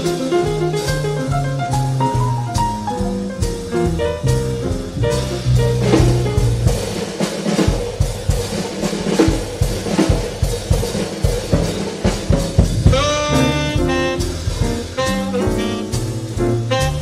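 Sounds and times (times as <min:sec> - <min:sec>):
upright bass: 0:00.0 - 0:06.9, 0:12.6 - 0:17.0
drum kit playing: 0:00.0 - 0:17.0
saxophone run of notes: 0:12.9 - 0:17.0.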